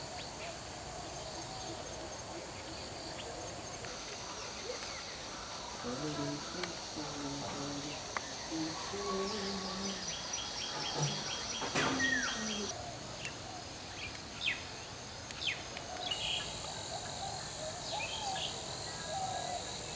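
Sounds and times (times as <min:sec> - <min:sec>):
high insect whine: 0:00.0 - 0:19.9
short bird calls: 0:09.8 - 0:12.8.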